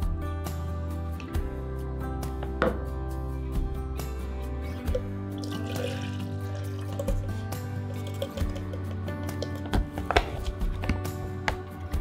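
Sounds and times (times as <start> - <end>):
background music: 0.0 - 12.0
milk pouring into plastic beaker: 4.9 - 8.9.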